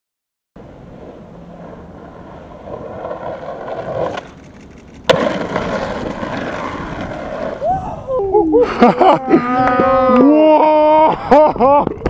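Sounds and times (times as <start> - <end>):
skateboard wheels rolling on concrete: 0.6 - 12.0
skateboard clack: 1.0 - 7.6.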